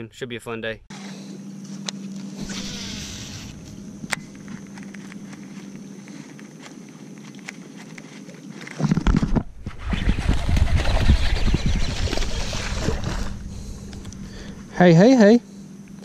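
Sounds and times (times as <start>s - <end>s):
low hum: 0.9s - 16.0s
loud rumbling noise: 2.4s - 4.9s, 11.6s - 15.0s
fishing reel spool whirring: 2.4s - 5.7s, 10.1s - 14.5s.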